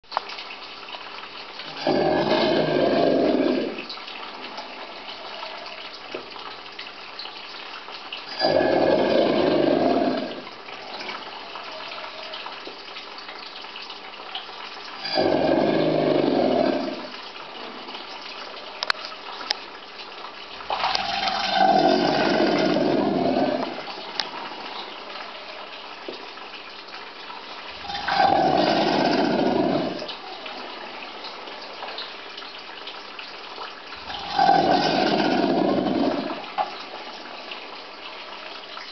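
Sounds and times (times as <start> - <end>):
alligators bellowing: 1.7 - 3.9, 8.3 - 10.5, 15.0 - 17.2, 20.7 - 24.6, 27.8 - 30.6, 34.0 - 36.7.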